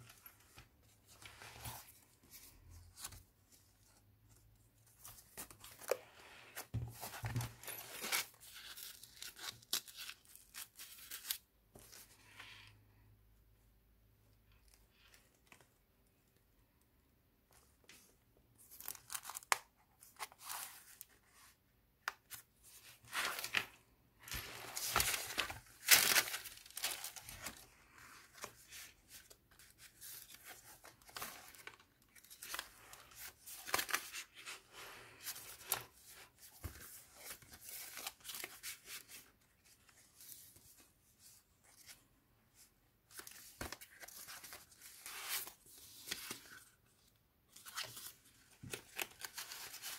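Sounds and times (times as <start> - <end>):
stiff paper pages rustling: 22.3 - 42.0, 42.6 - 49.9.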